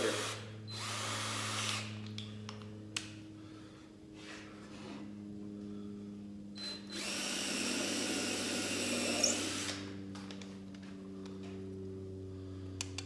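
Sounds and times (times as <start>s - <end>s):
cordless drill drilling into wood: 0.0s - 1.9s, 6.6s - 9.8s
steady low hum: 0.0s - 13.0s.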